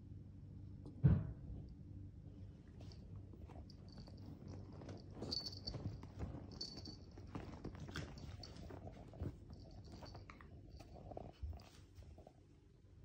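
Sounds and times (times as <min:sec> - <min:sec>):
dog paws scrabbling on leather sofa: 0:02.6 - 0:12.4
paws brushing clothes: 0:02.8 - 0:12.4.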